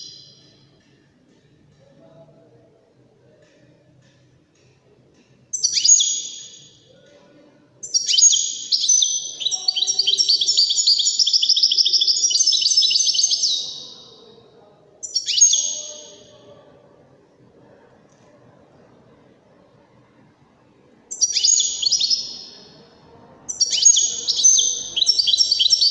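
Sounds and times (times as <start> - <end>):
goldfinch singing: 7.8 - 14.4, 15.0 - 16.4, 21.1 - 22.8, 23.5 - 25.9.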